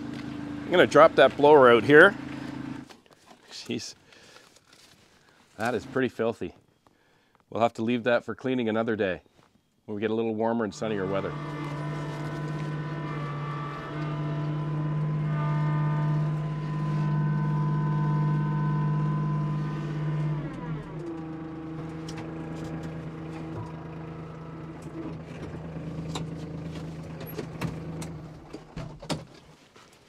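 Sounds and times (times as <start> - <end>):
diesel tractor engine running: 0.0 - 2.9, 10.7 - 28.8.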